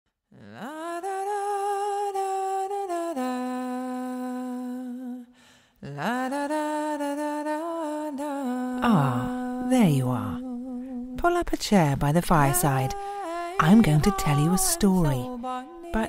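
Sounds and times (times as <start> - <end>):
person humming a slow tune: 5.8 - 6.5, 8.4 - 11.1, 13.0 - 16.0.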